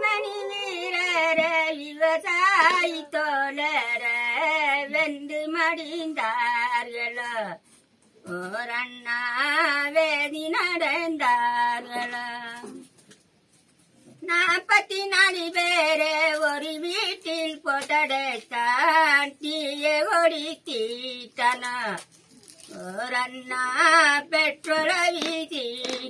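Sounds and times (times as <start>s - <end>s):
elderly woman singing unaccompanied: 0.0s - 7.6s, 8.2s - 12.9s, 14.2s - 22.1s, 22.7s - 26.0s.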